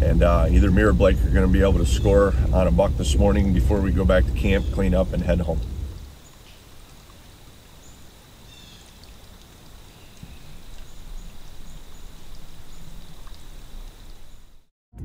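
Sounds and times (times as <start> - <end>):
wind rustle: 0.0 - 14.7
bird chirps and trill: 7.8 - 9.2.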